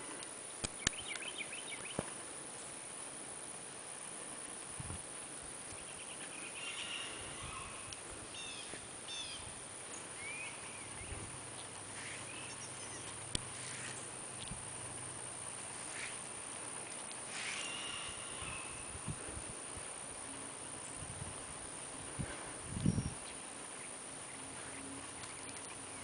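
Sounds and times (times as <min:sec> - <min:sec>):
steady background hiss: 0:00.0 - 0:26.0
sharp click: 0:00.6 - 0:01.3
bird chirps: 0:00.8 - 0:02.0, 0:05.7 - 0:14.1.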